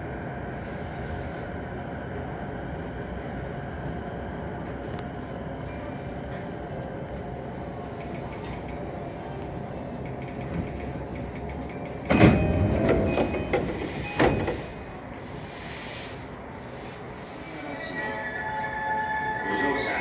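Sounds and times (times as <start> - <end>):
train humming: 0.0 - 20.0
train doors sliding open: 5.9 - 18.7.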